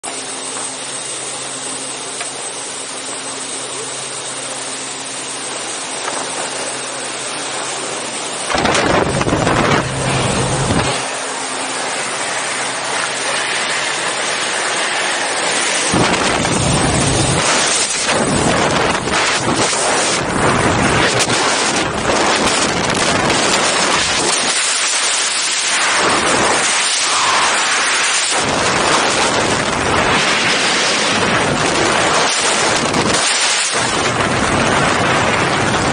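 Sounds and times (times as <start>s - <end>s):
low engine hum: 0.1s - 23.9s
wind buffeting microphone: 8.4s - 24.7s, 25.9s - 35.9s
wind rushing: 8.5s - 11.2s, 15.6s - 22.2s.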